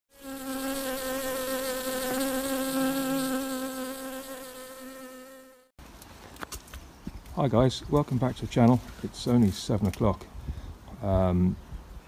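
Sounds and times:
bee buzzing: 0:00.1 - 0:05.7.

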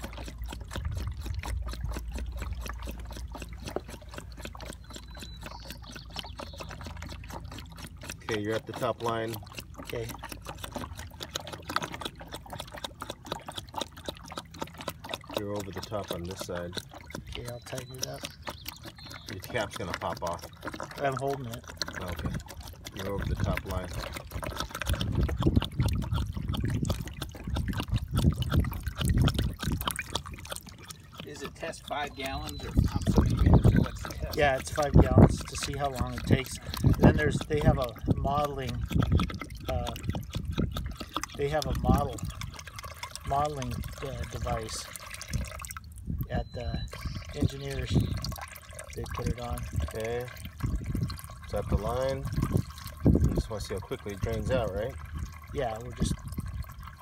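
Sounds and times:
water gurgling: 0:00.0 - 0:57.0
water pouring and splashing: 0:00.0 - 0:57.0.

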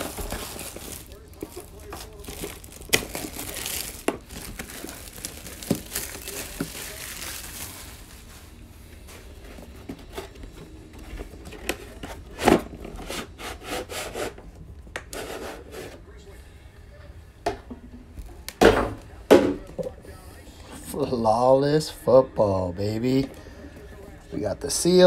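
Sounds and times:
plastic wrap crinkling: 0:00.0 - 0:12.4
rubbing of cardboard box: 0:12.0 - 0:14.4.

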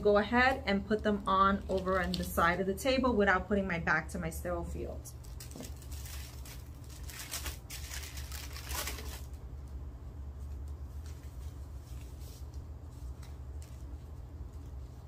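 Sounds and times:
paper wrapper crinkling: 0:05.2 - 0:09.4.

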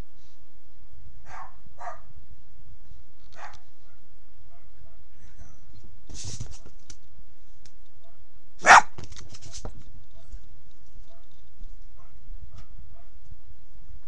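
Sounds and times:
dog barking: 0:01.3 - 0:02.1, 0:03.4 - 0:05.6, 0:08.0 - 0:08.9, 0:12.0 - 0:13.2.

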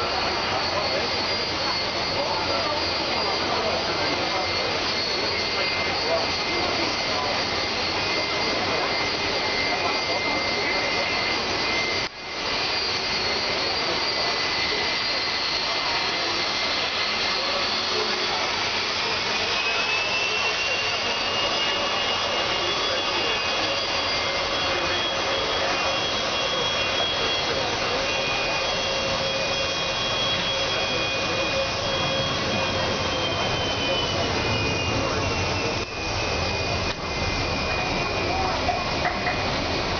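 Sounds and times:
jet engines running: 0:00.0 - 0:39.9.

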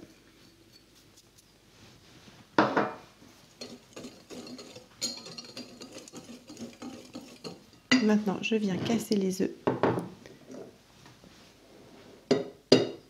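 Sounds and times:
whisk scraping glass bowl: 0:03.4 - 0:08.2.

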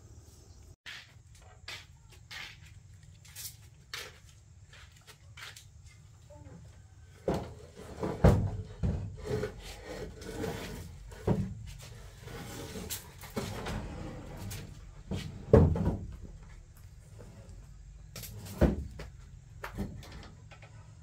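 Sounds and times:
objects knocking and thudding: 0:07.2 - 0:12.0, 0:13.0 - 0:16.8, 0:17.8 - 0:21.0.

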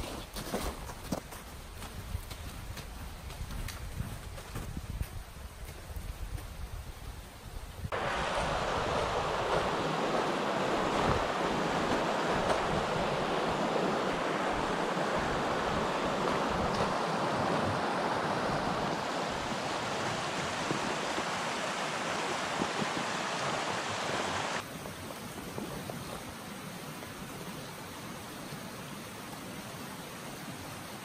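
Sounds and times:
stream rushing over rocks: 0:07.8 - 0:31.0.

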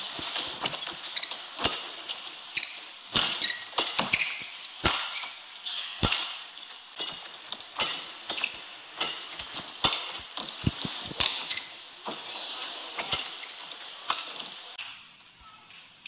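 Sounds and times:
shoe squeaks on court floor: 0:00.6 - 0:06.0, 0:11.2 - 0:11.8, 0:13.0 - 0:14.3
racket striking shuttlecock: 0:03.1 - 0:05.3, 0:06.0 - 0:08.1.

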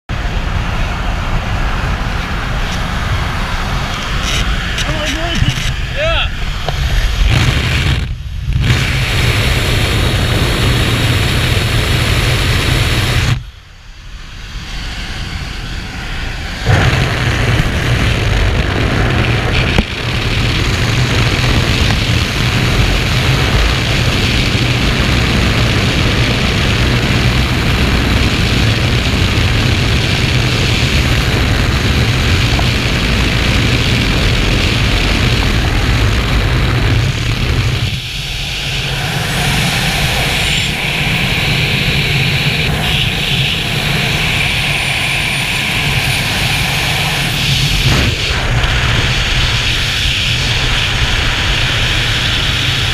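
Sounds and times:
propeller engine noise: 0:00.1 - 0:52.9
wind rush: 0:00.1 - 0:52.9.

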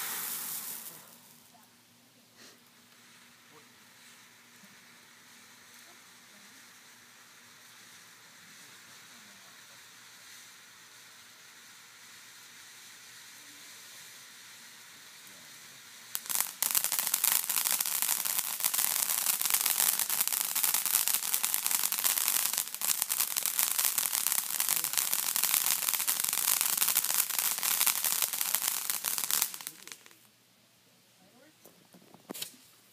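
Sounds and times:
firework hissing and crackling: 0:00.0 - 0:30.4, 0:32.2 - 0:32.9.

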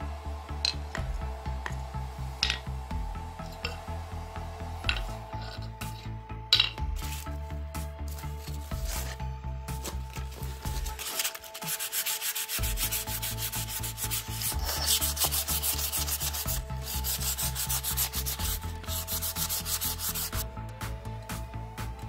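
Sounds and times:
sanding pad scratching metal: 0:07.0 - 0:20.4.

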